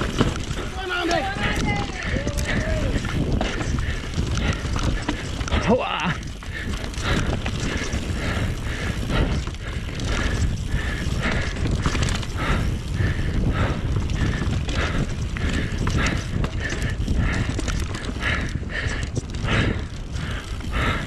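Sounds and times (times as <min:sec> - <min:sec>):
bike rattling and clattering: 0:00.0 - 0:21.0
bike tyres rumbling on dirt: 0:00.0 - 0:21.0.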